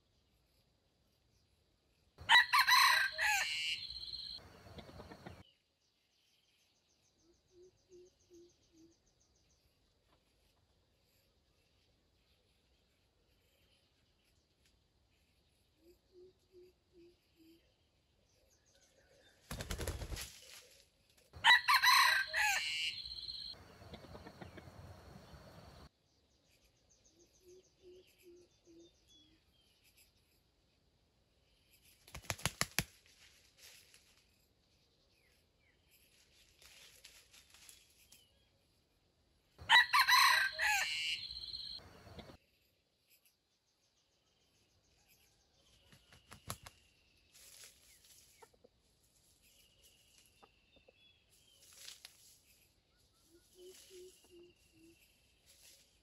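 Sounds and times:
rooster crowing: 2.2s - 4.2s, 21.4s - 23.4s, 39.6s - 41.8s
wings flapping: 19.4s - 20.8s, 32.0s - 34.0s, 45.9s - 46.8s.

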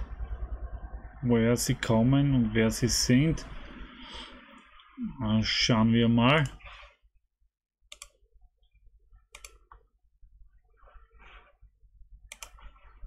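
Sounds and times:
computer mouse clicks: 7.9s - 8.2s, 9.3s - 9.8s, 12.3s - 12.8s.

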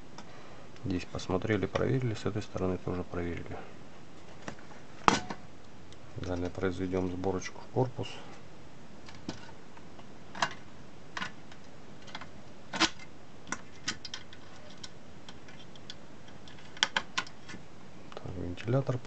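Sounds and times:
steady background hiss: 0.0s - 19.0s.

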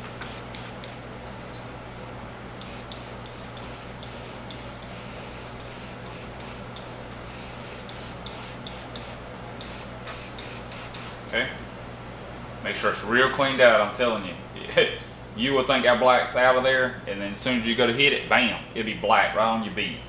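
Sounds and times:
airbrush spraying hiss: 0.0s - 1.0s, 2.6s - 11.2s, 17.7s - 18.1s
air compressor humming: 0.0s - 12.5s, 17.5s - 18.3s.

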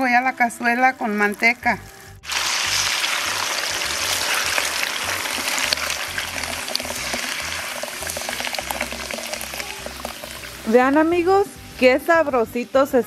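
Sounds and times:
sauce hissing in hot fat: 2.0s - 11.8s.

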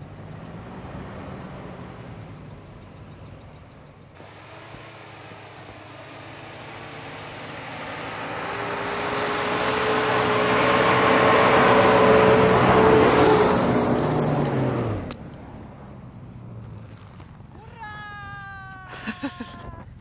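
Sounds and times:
suv engine working hard: 0.0s - 17.6s.

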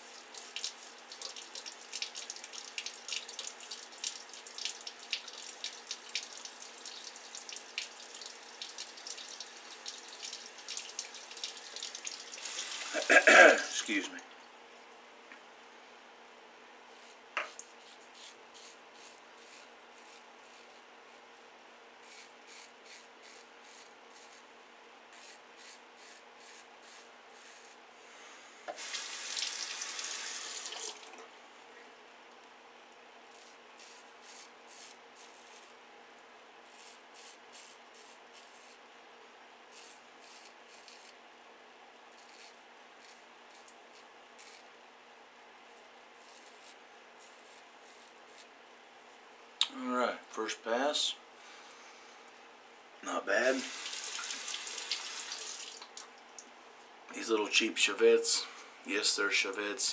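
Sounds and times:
razor scraping stubble: 16.9s - 20.8s, 22.0s - 24.4s, 25.1s - 27.8s, 33.3s - 35.7s, 36.7s - 38.8s, 39.7s - 41.2s, 42.1s - 44.7s, 46.2s - 48.5s.

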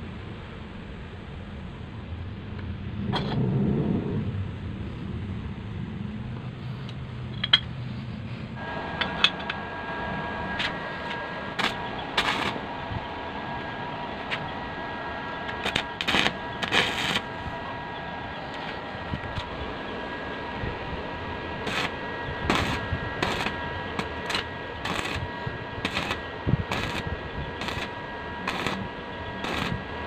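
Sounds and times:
steady whine: 0.0s - 30.0s
arc welding crackle: 8.6s - 14.6s, 15.2s - 30.0s.

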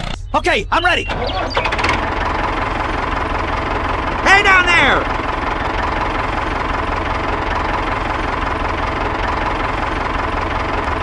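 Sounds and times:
tractor engine idling: 0.1s - 11.0s.

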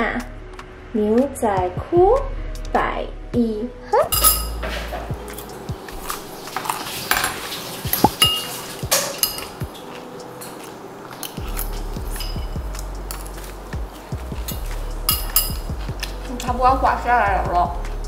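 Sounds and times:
cutlery clinking against a dish: 4.1s - 5.5s, 6.5s - 13.5s, 14.4s - 16.2s.

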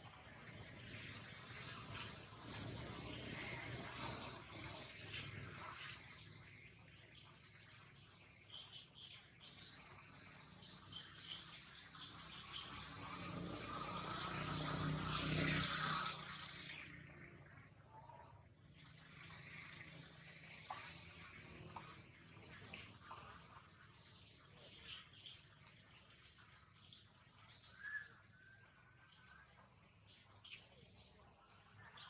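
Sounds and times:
faint bird chirping: 0.0s - 32.0s.

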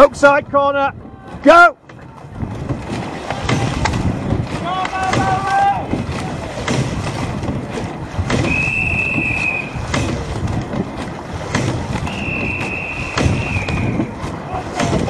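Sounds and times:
rushing water: 0.0s - 15.0s
wind noise: 0.0s - 15.0s
oars knocking: 1.3s - 15.0s
long whistle blasts: 8.5s - 9.8s, 12.1s - 14.0s.

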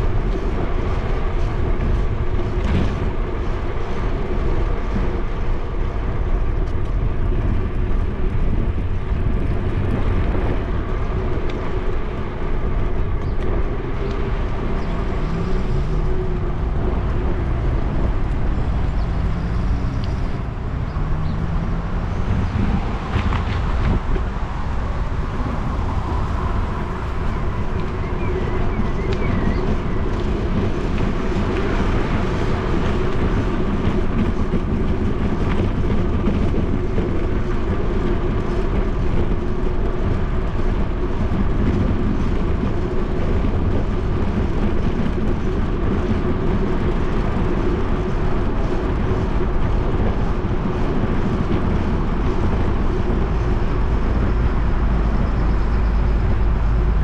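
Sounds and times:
bicycle tyres rolling: 0.0s - 57.0s
wind on microphone: 0.0s - 57.0s.

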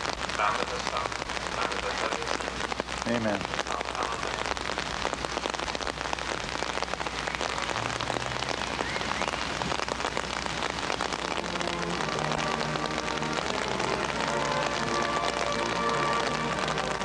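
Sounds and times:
rain pattering on umbrellas: 0.0s - 17.0s
band playing low notes: 11.1s - 17.0s.

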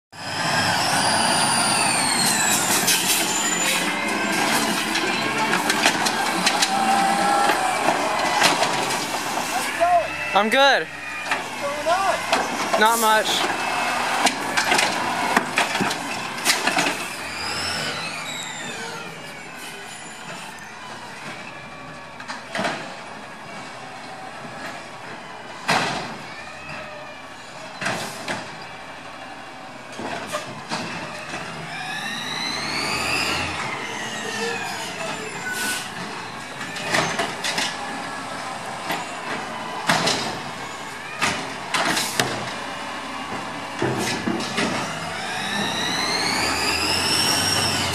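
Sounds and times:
mechanical arm whine: 0.2s - 9.8s, 13.4s - 20.7s, 30.9s - 47.9s
garbage truck running: 0.2s - 47.9s
carts knocking and banging: 2.5s - 13.6s, 38.6s - 47.9s.

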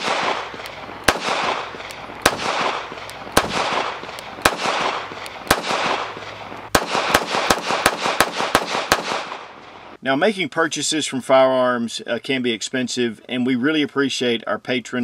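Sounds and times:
pistol shots with echo: 0.0s - 9.8s.

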